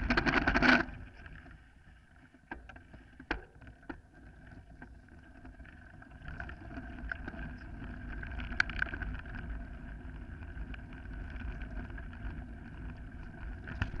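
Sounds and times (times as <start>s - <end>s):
bike rattles and clicks: 0.0s - 1.6s, 2.5s - 14.0s
bike tyres on loose gravel: 4.0s - 14.0s
wind rumbling on microphone: 7.0s - 14.0s.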